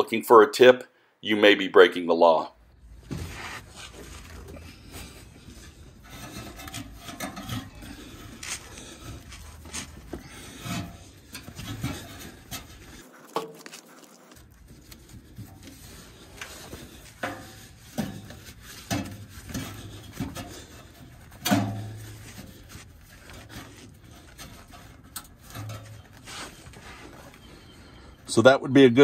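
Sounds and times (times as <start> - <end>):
strap scraping against metal: 3.0 - 28.3.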